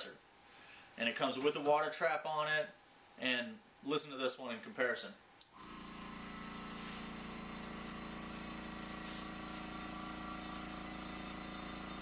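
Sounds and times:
airbrush compressor humming: 5.6 - 12.0.

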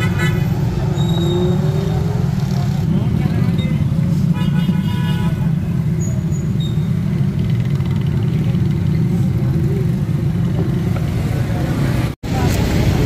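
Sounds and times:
road traffic rumble: 0.0 - 13.0
vehicle engines: 0.0 - 13.0.

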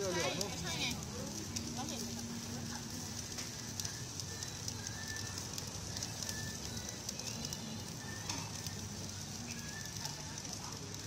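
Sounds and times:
grill crackling hiss: 0.0 - 11.0.

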